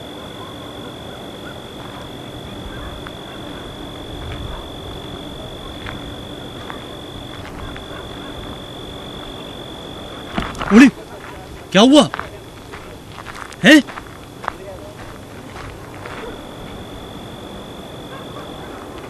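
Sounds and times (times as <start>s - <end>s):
insect trilling: 0.0s - 11.2s, 15.8s - 19.0s.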